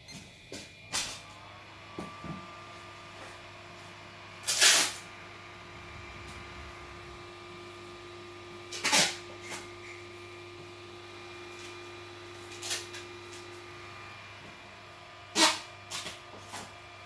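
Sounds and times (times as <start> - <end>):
cpu cooler fan whirring: 0.0 - 17.0
loud noisy bursts: 4.4 - 9.3.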